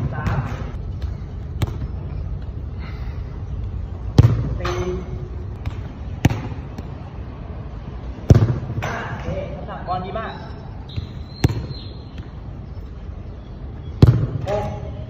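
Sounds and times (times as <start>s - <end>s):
football kick thuds: 1.5s - 1.9s, 4.1s - 4.6s, 5.5s - 6.9s, 8.2s - 8.8s, 10.9s - 12.4s, 14.0s - 14.4s.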